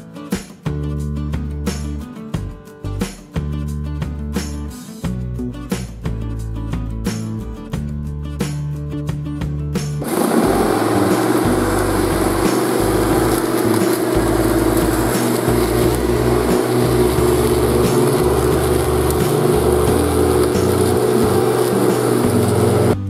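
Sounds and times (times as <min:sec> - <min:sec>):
guitar music: 0:00.0 - 0:23.0
electric lawn mower cutting grass: 0:10.0 - 0:23.0.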